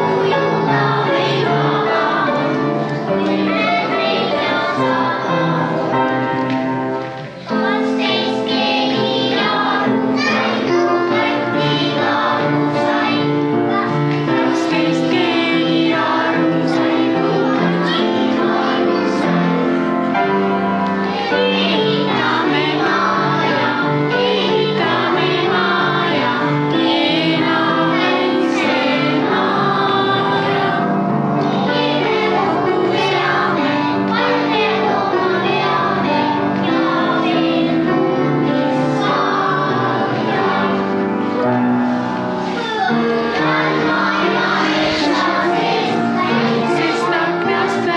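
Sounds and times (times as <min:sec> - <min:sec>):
children singing: 0:00.0 - 0:47.9
instrumental accompaniment: 0:00.0 - 0:47.9.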